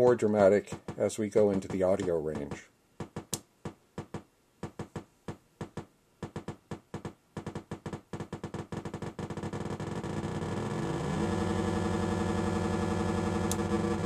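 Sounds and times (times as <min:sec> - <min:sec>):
synthesizer pulse clicks and buzz: 0:07.0 - 0:14.0.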